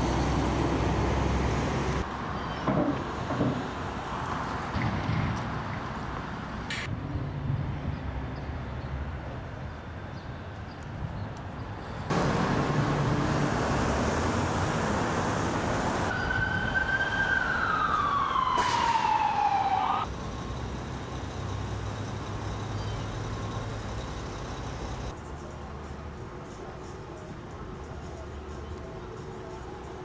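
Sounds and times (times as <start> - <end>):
street traffic: 0.0 - 30.0
emergency vehicle siren: 14.6 - 23.6.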